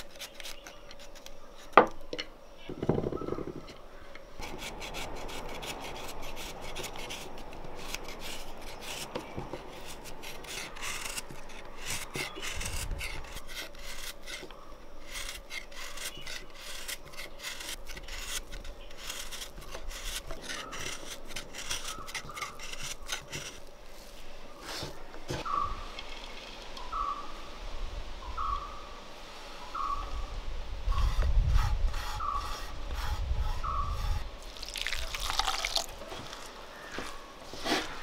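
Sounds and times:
knife scraping jaggery: 0:00.0 - 0:01.8, 0:04.4 - 0:23.7.

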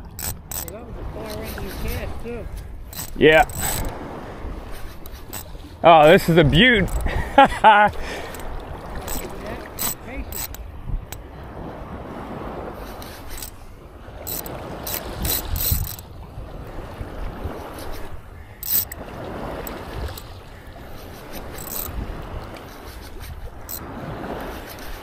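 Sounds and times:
sharp clicks and knocks: 0:00.0 - 0:01.6, 0:02.9 - 0:04.0, 0:08.3 - 0:10.6
surf washing onto beach: 0:05.7 - 0:10.4.

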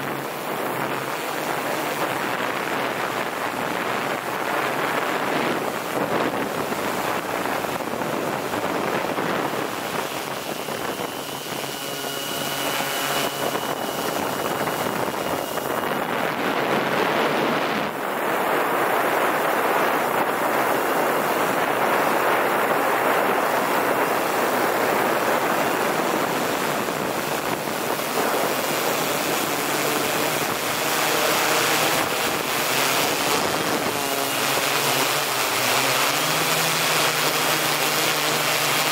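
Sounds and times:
air rushing over microphone: 0:00.0 - 0:36.2
drone motors and propellers: 0:00.0 - 0:38.9
faint whining tone: 0:06.9 - 0:18.7.

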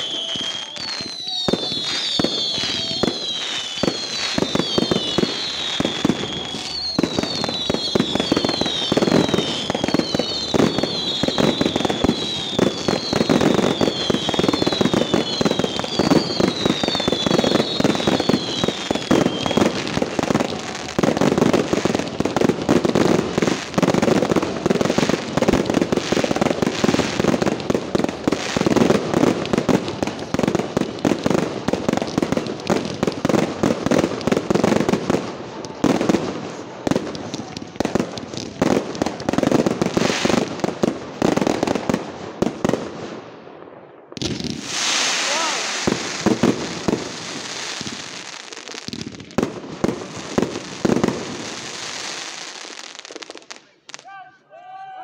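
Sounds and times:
wavering firework whistles: 0:00.0 - 0:22.0, 0:44.6 - 0:48.8
fireworks bangs and crackling: 0:00.0 - 0:54.1.

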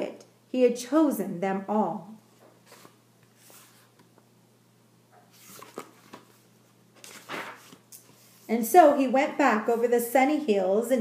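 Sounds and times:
paper pages rustling: 0:02.6 - 0:04.1, 0:05.3 - 0:08.5.

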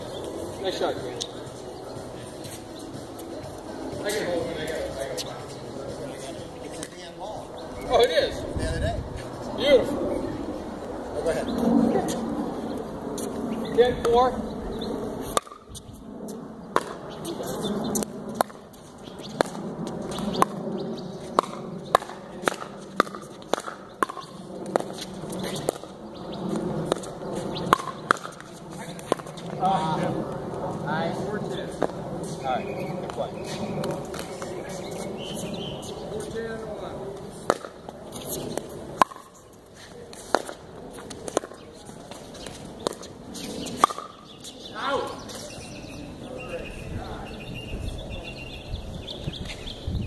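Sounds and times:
paddles hitting plastic ball: 0:21.4 - 0:25.0.

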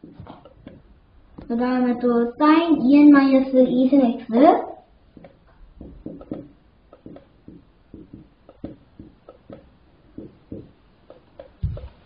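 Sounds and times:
marker squeaking on whiteboard: 0:05.2 - 0:11.9
dull low thump: 0:11.6 - 0:12.0.

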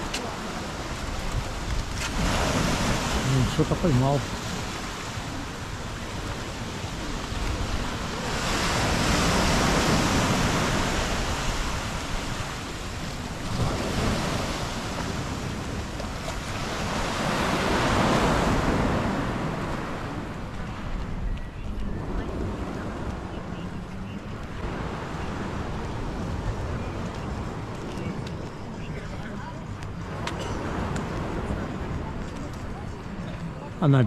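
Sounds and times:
sea waves washing against stone: 0:00.0 - 0:28.3.

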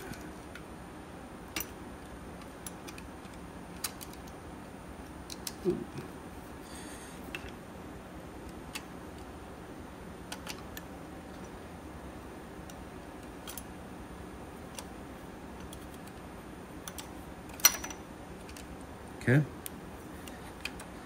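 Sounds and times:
steady background noise: 0:00.0 - 0:21.0
small metallic clicks: 0:02.4 - 0:04.4, 0:12.6 - 0:13.7, 0:16.8 - 0:18.9.

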